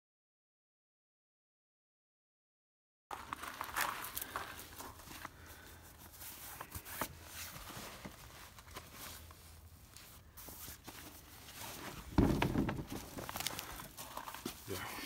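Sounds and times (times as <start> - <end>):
hand rubbing nylon fabric: 4.6 - 12.1
dull thump: 12.1 - 13.2.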